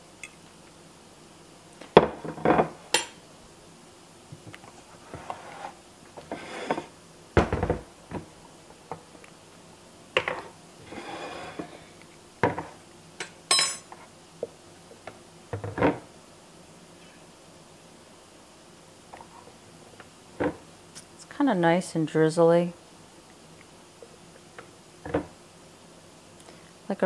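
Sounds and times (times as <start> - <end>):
short scrapes: 10.9 - 11.7
metal clinking on china: 13.5 - 13.9.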